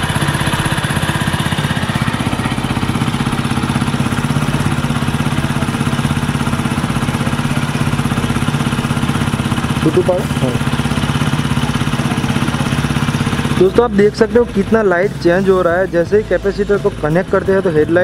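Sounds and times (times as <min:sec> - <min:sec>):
motorcycle engine idling: 0:00.0 - 0:18.0.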